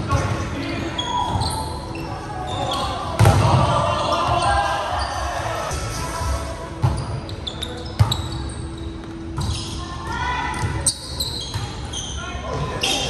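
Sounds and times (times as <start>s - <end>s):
shoe squeaks: 0.1s - 3.2s, 3.9s - 5.8s, 6.8s - 13.0s
players shouting: 2.4s - 6.1s
volleyball struck: 3.2s - 3.8s.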